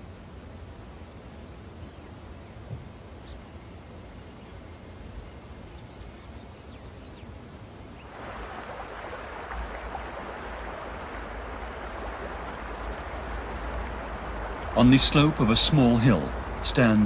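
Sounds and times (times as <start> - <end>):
low rumble of wind: 0.0 - 17.0
mountain stream rushing: 8.0 - 17.0.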